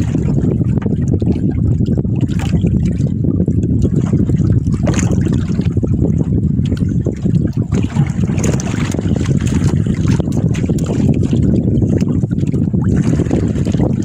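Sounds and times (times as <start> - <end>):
loud low rumble: 0.0 - 14.0
water trickling and splashing: 0.0 - 14.0
sharp splashes: 7.7 - 14.0.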